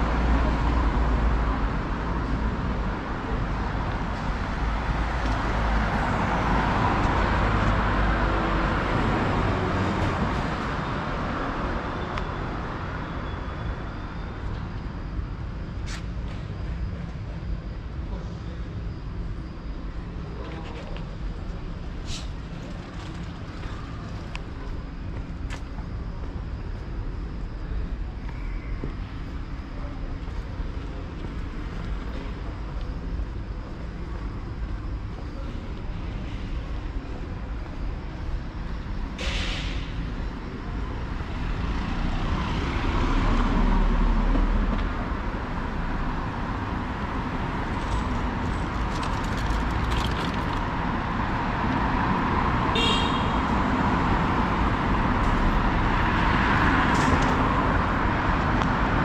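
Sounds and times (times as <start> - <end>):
passing cars hum: 38.6 - 59.0.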